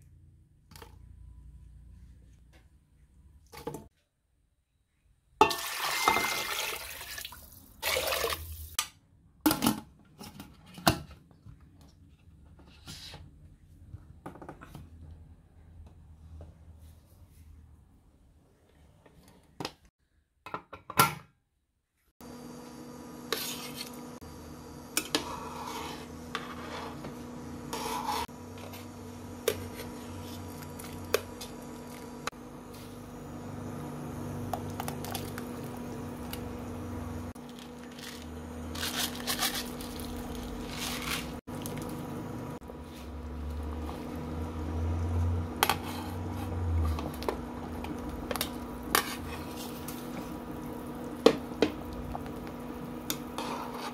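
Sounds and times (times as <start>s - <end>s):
metal pot and spoon clinking: 5.4s - 6.5s
electrical hum: 22.2s - 53.8s.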